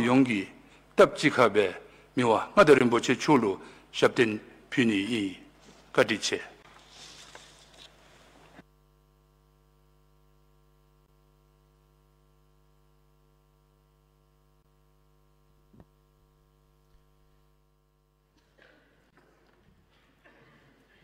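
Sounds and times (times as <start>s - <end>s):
electrical hum: 0.0s - 21.0s.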